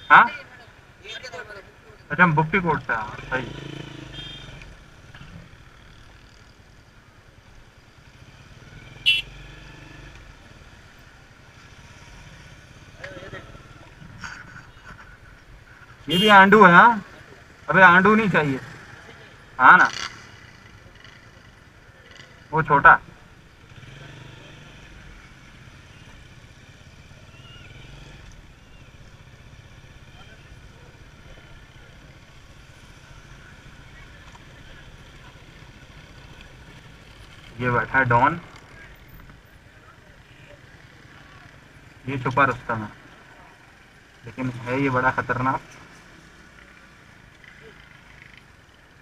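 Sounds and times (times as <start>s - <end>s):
motorcycle engine at low revs: 3.2s - 6.5s
motorcycle engine running: 3.2s - 10.8s.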